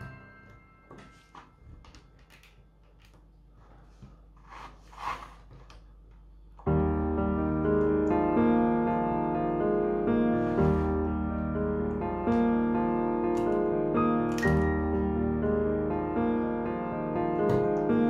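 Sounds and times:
piano music: 0.0 - 1.8, 6.6 - 18.0.

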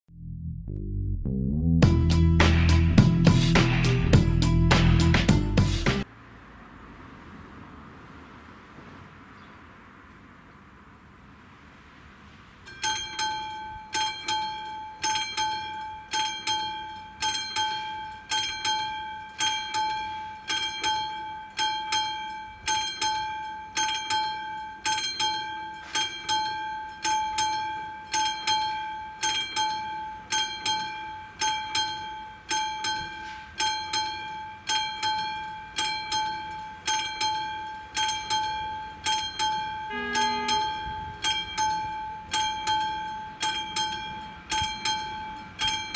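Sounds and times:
level-crossing warning bell: 12.6 - 45.9.

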